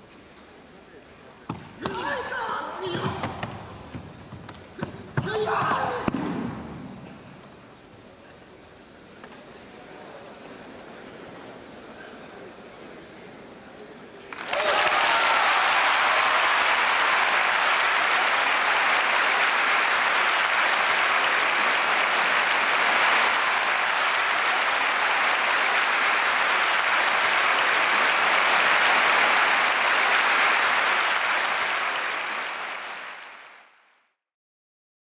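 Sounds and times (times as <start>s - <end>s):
large crowd applauding: 14.3s - 33.9s.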